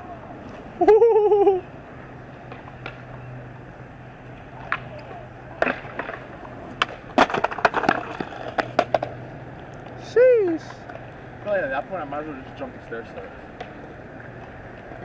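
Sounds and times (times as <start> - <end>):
person crying out: 0.8 - 1.7
skateboard clattering on concrete: 4.6 - 11.1.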